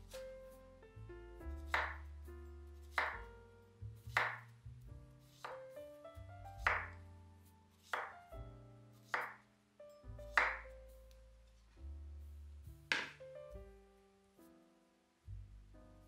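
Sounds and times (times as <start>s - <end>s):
soft background music: 0.0s - 16.0s
knife slicing on wooden board: 5.3s - 5.6s, 7.8s - 8.2s.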